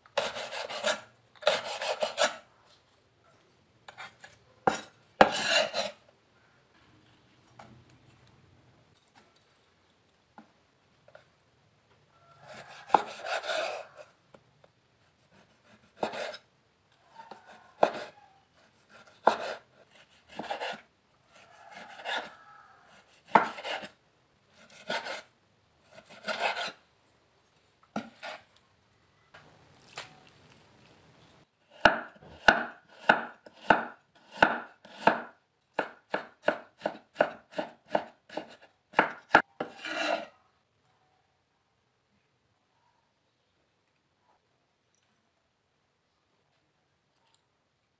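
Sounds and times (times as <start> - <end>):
knife slicing on cutting board: 3.9 - 6.0, 24.6 - 25.2, 26.0 - 26.8, 36.8 - 40.3
cleaver chopping ginger: 23.3 - 23.9, 31.8 - 40.2.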